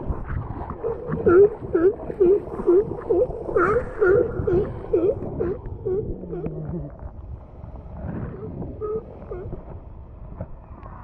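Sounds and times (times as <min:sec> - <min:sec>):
sea lion barking: 0:00.8 - 0:06.9.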